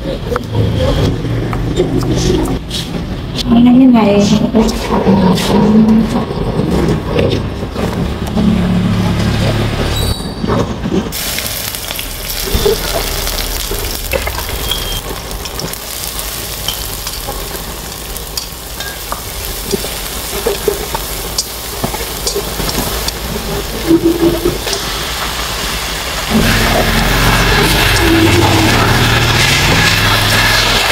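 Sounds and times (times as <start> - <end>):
oil sizzling in a wok: 11.2 - 30.9.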